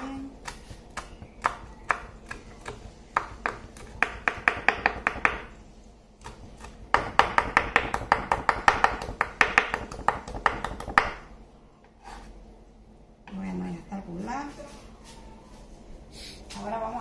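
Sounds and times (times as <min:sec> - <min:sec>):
knife chopping on wooden board: 0:00.4 - 0:05.5, 0:06.2 - 0:11.2.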